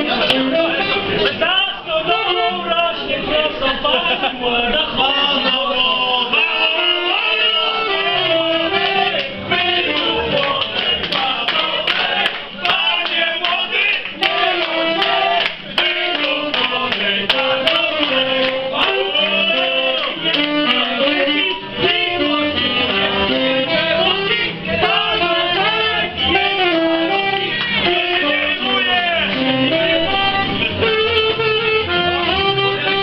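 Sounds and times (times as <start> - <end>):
people clapping along: 0.0 - 1.4, 6.8 - 23.1, 24.1 - 30.3
live band playing: 0.0 - 3.6, 6.3 - 33.0
person singing: 0.0 - 33.0
saxophone: 0.0 - 33.0.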